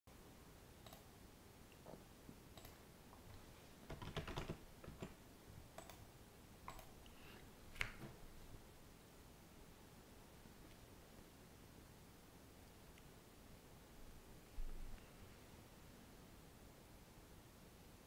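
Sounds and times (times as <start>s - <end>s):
computer keyboard typing: 3.9s - 5.2s, 5.8s - 6.1s, 6.7s - 7.0s.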